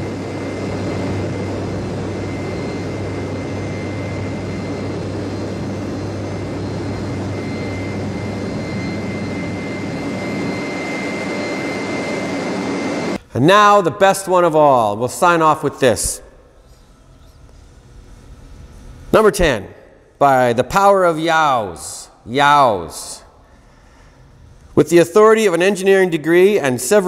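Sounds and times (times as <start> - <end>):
jet engine roar: 0.0 - 26.7
high compressor whine: 0.0 - 27.0.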